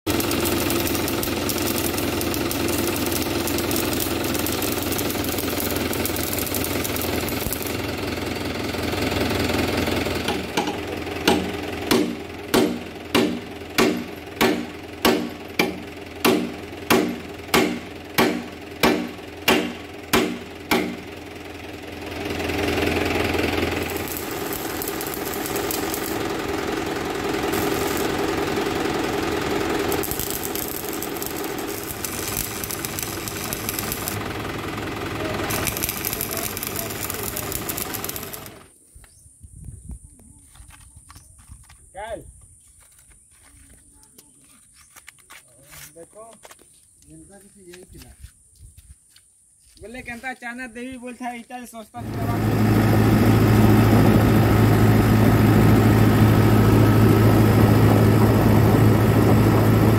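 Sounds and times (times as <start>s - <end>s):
arc welding crackling hiss: 0.1s - 7.9s, 23.8s - 26.4s, 27.4s - 28.6s, 29.7s - 34.2s, 35.5s - 38.6s.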